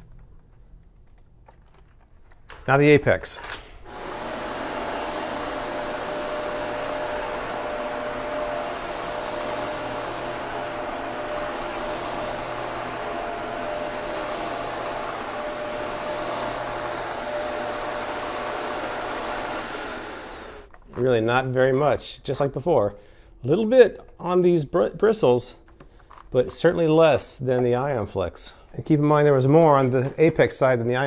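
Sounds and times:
vacuum cleaner running: 3.8s - 20.8s.

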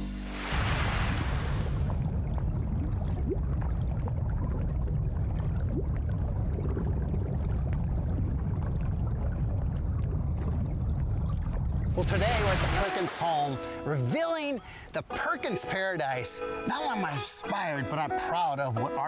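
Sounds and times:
low rumble: 0.6s - 12.8s
waterfall rushing: 12.0s - 13.9s.

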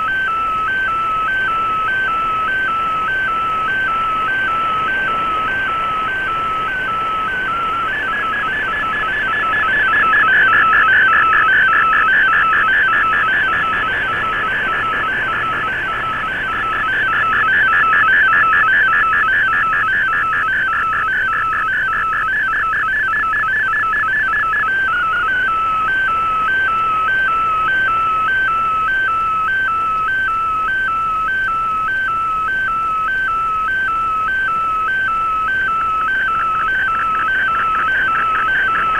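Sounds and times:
warbling two-pitch data tone: 0.0s - 26.1s
shortwave radio hiss: 0.0s - 30.3s, 32.4s - 38.9s.

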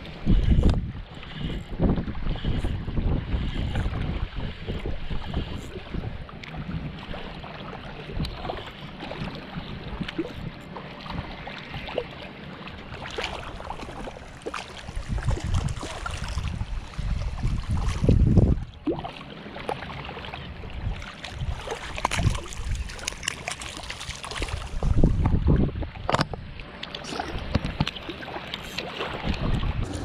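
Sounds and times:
wind buffeting microphone: 0.0s - 11.4s, 14.8s - 18.9s, 20.6s - 23.2s, 24.4s - 27.9s, 29.1s - 30.0s
small waves lapping shore: 0.0s - 25.2s, 25.8s - 30.0s.

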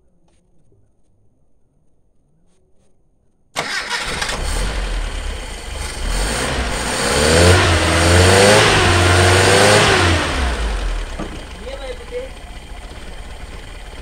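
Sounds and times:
car engine running: 3.6s - 14.0s.

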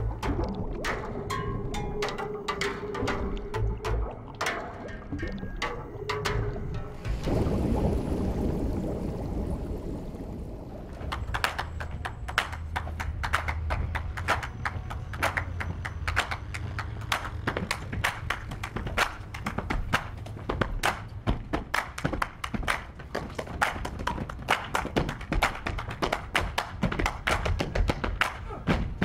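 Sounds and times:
feet tapping on rooftop: 10.9s - 29.0s.

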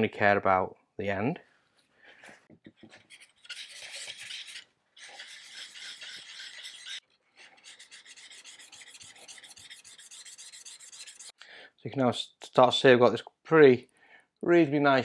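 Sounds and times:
chisel scraping on sharpening plate: 2.9s - 11.4s.

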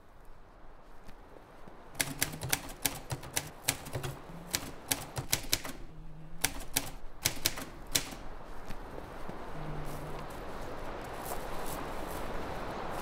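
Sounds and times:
typewriter keys clacking: 2.0s - 5.8s, 6.4s - 8.2s.

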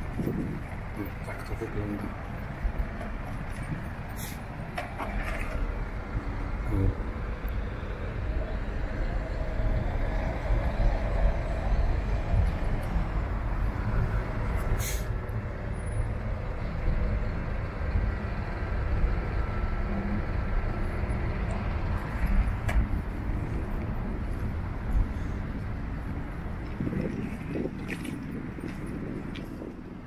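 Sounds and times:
road traffic going by: 0.0s - 30.0s
short sharp hiss: 14.8s - 15.1s.

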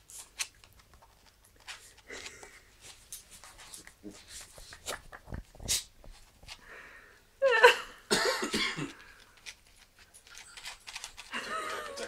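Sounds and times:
person coughing: 7.6s - 9.1s.

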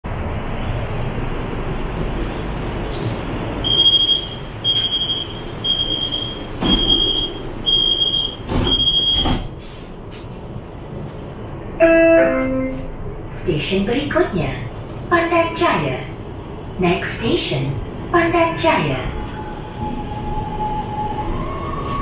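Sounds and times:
train interior hum: 0.0s - 22.0s
sliding doors closing with thuds: 5.7s - 10.3s.

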